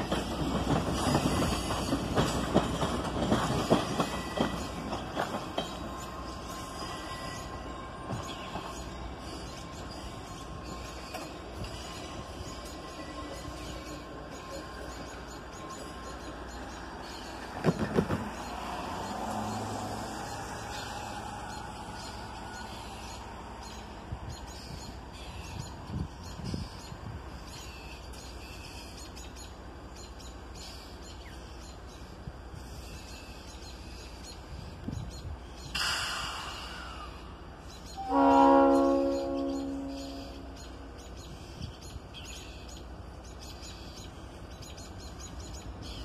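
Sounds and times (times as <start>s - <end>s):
birds chirping: 0.0s - 35.8s, 36.8s - 46.0s
locomotive air horn blast: 38.0s - 40.5s.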